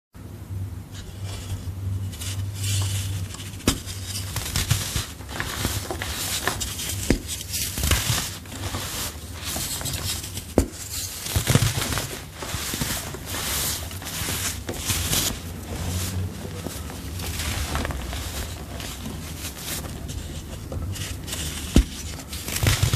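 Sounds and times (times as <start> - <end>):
chalk crunching and crumbling: 1.0 - 22.9.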